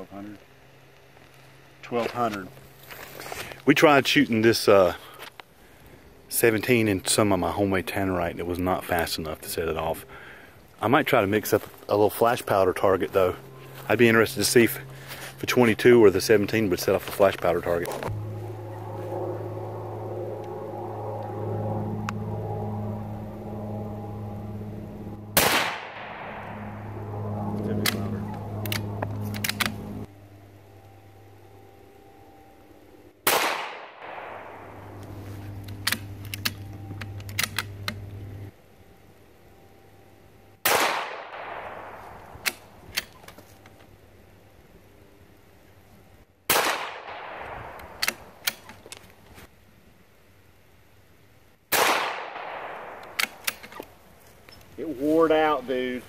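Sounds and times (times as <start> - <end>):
steady low hum: 0.0 - 56.0
rifle shot with echo: 25.4 - 29.8, 33.2 - 35.0, 40.6 - 42.6, 46.5 - 48.4, 51.7 - 53.6
rifle bolt clicks: 28.6 - 29.8, 47.8 - 48.8, 52.6 - 53.8.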